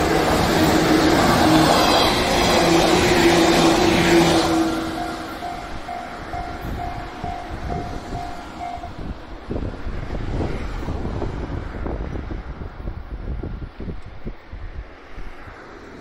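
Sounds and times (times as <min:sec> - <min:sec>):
electric train passing: 0:00.0 - 0:16.0
level crossing warning bell: 0:04.6 - 0:09.3.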